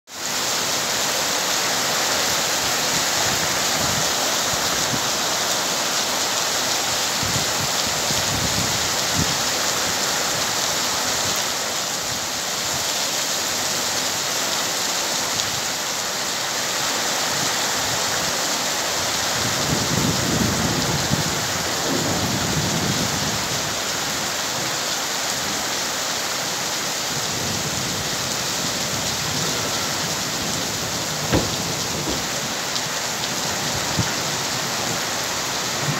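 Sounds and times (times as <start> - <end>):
heavy rain hiss: 0.1 - 35.9.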